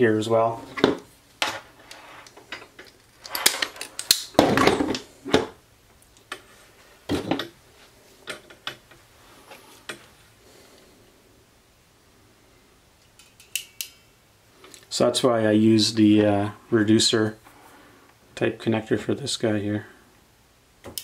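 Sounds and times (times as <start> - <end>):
tools clicking and clattering on table: 0.8 - 5.0, 13.0 - 14.0.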